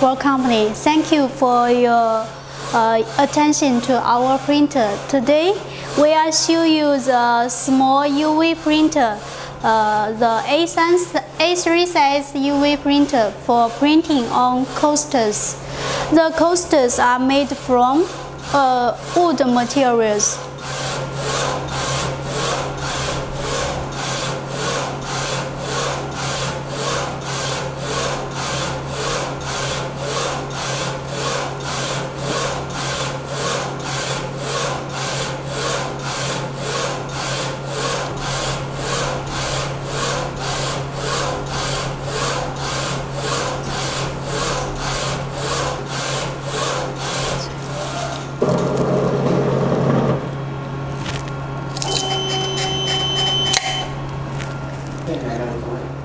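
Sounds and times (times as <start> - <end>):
louder printer whir: 0.0 - 56.0
printer carriage whirring: 0.0 - 56.0
steady low hum: 0.0 - 56.0.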